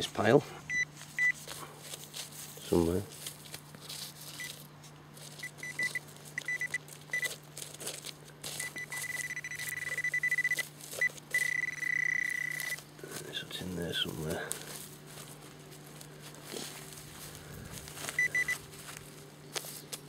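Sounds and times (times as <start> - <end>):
metal detector probe beeping: 0.7 - 1.4, 5.4 - 7.4, 8.5 - 12.8, 18.1 - 18.6.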